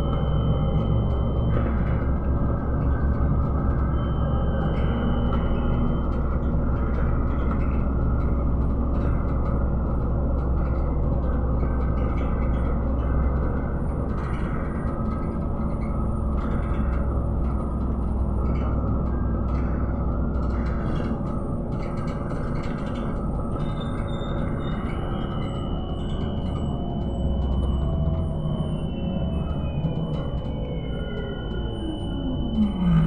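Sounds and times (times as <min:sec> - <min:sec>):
trolleybus ride rumble: 0:25.2 - 0:33.0
high whine: 0:27.6 - 0:33.0.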